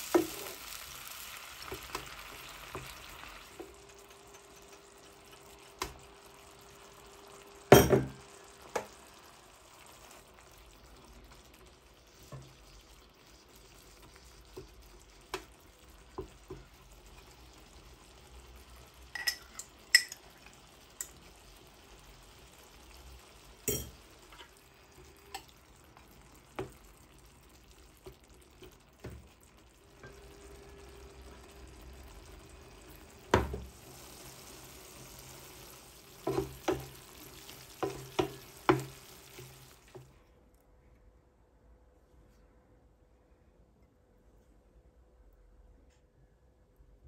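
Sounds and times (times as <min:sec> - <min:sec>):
wooden spoon stirring in pan: 0:00.0 - 0:06.9, 0:08.2 - 0:22.7, 0:23.3 - 0:40.2
faint frying sizzle: 0:00.0 - 0:40.2
spoon knocking against pan: 0:36.2 - 0:37.0, 0:37.8 - 0:39.0.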